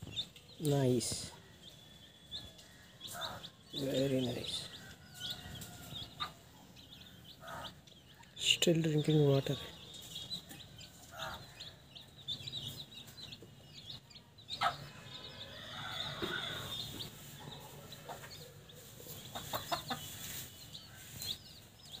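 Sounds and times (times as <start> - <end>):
chicks peeping: 0.0 - 22.0
hen clucking: 2.3 - 8.3, 10.0 - 21.4.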